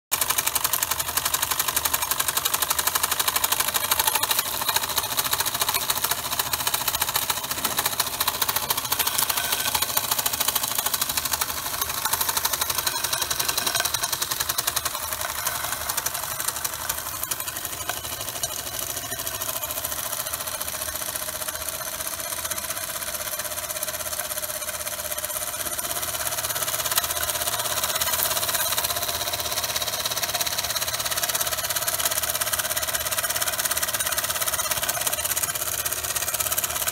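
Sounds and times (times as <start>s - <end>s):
toy steam engine exhaust beats: 0.1s - 36.9s.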